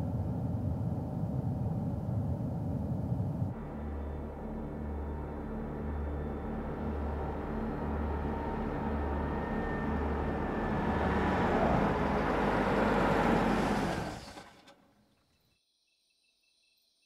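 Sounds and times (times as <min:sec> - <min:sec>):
low pulsing throb: 0:00.0 - 0:12.8
car approaching: 0:00.1 - 0:14.9
crickets chirping: 0:15.3 - 0:17.0.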